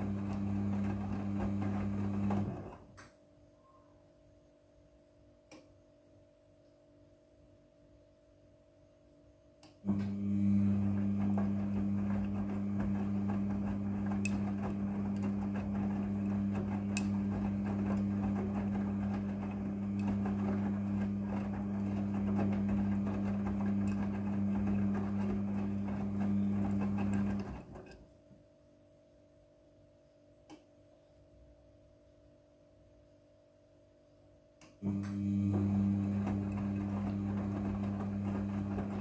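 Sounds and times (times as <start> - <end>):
washing machine motor hum: 0.0 - 3.0, 9.8 - 28.0, 34.8 - 39.0
laundry tumbling: 10.5 - 27.8.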